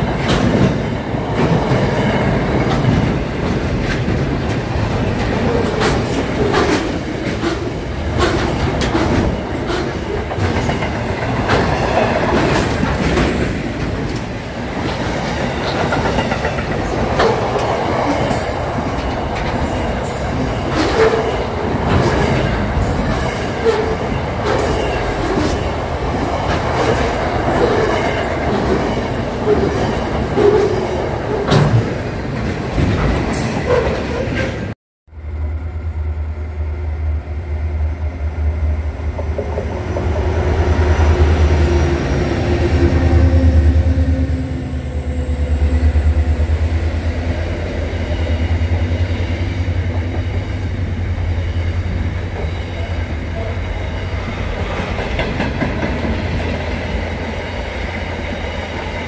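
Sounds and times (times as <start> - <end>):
diesel locomotive engine drone: 35.1 - 59.0.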